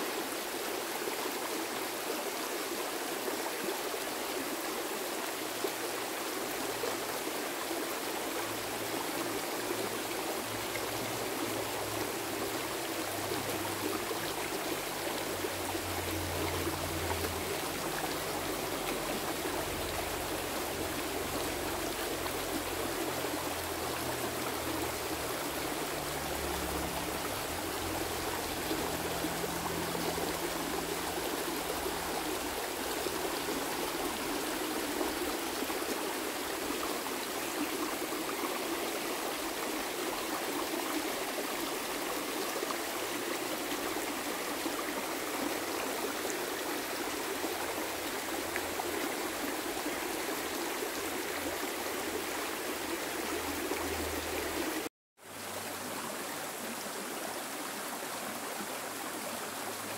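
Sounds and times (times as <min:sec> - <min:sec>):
waterfall rushing: 0:00.0 - 0:52.8.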